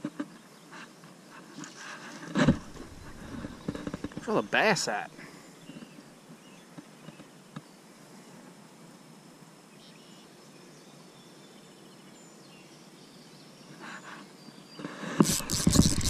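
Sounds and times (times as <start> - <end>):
faint hiss of air and water: 0.6 - 11.8, 13.6 - 16.0.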